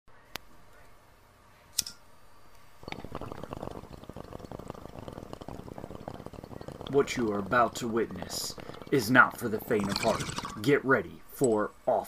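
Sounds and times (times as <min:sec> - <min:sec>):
sharp click: 0:01.7 - 0:02.0
liquid bubbling crackle: 0:02.7 - 0:10.8.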